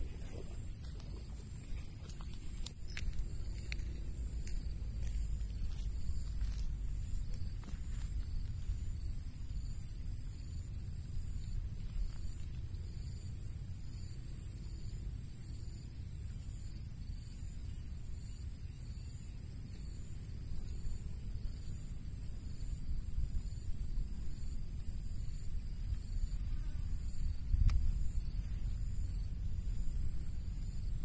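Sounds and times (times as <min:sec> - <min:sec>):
wind rumble on microphone: 0:00.0 - 0:15.8, 0:19.6 - 0:31.0
insects chirring: 0:00.0 - 0:31.0
sharp click: 0:27.6 - 0:27.9.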